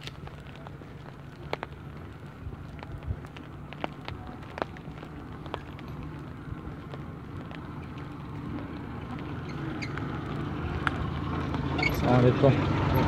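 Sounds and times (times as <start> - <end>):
van engine humming: 0.0 - 13.0.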